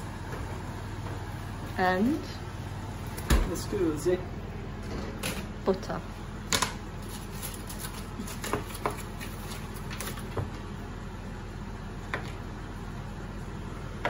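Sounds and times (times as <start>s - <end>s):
steady low hum: 0.0s - 14.0s
foil wrapper crinkling: 7.0s - 10.4s.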